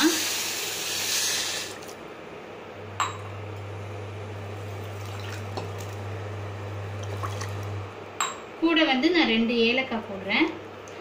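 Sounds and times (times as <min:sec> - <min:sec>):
steady low hum: 0:01.6 - 0:11.0
water poured into saucepan: 0:04.8 - 0:06.0, 0:07.0 - 0:07.7.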